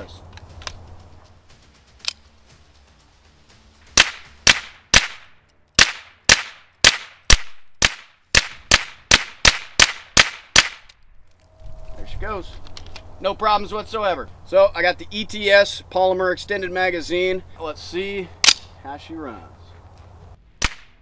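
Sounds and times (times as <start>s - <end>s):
rifle gunshots: 4.0s - 10.8s.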